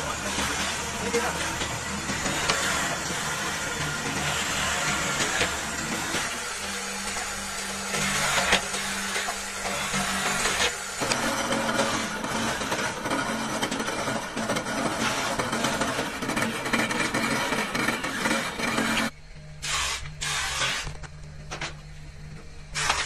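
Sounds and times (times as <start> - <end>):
drill cutting through plywood: 0.0 - 21.0, 22.8 - 23.0
steady motor hum: 0.0 - 23.0.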